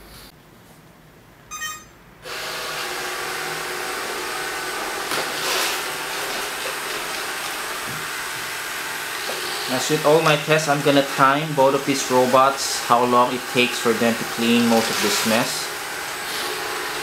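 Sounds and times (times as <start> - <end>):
short electronic beep: 1.5 - 2.0
robot vacuum running: 2.2 - 17.0.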